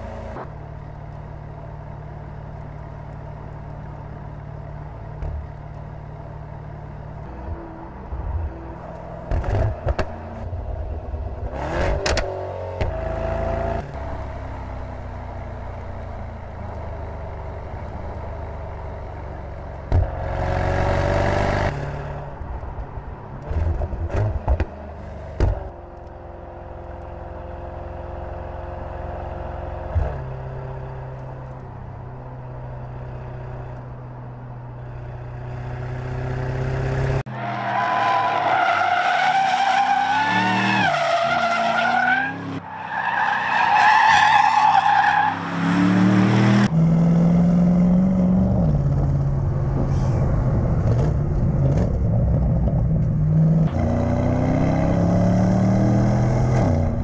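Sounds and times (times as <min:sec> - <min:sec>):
high wavering tyre squeal: 0:37.3 - 0:45.8
car engine accelerating: 0:44.8 - 0:57.0.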